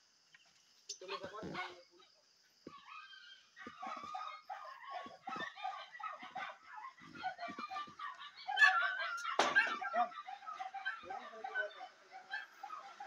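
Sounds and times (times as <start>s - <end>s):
dogs barking and yipping: 2.6s - 13.0s.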